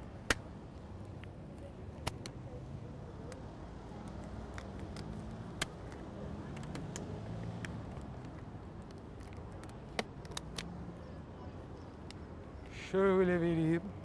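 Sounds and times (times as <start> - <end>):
low hum of traffic: 0.0 - 14.0
sharp clicks: 2.0 - 2.4, 4.0 - 10.7.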